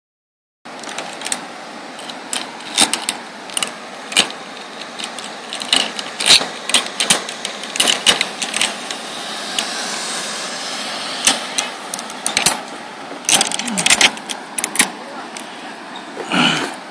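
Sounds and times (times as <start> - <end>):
zipline trolley clicking and rattling: 0.7 - 9.9, 11.2 - 16.8
zipline whirring hiss: 7.0 - 14.7.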